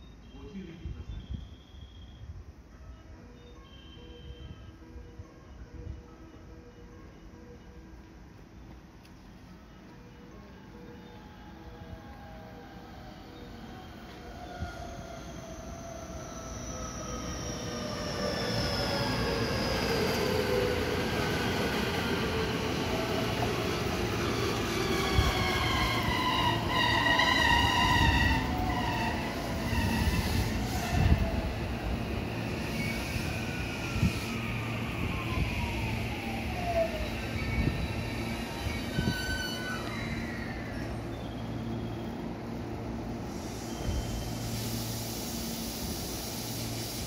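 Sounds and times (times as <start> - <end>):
train motor whine: 9.5 - 42.3
high squealing tones: 11.8 - 42.3.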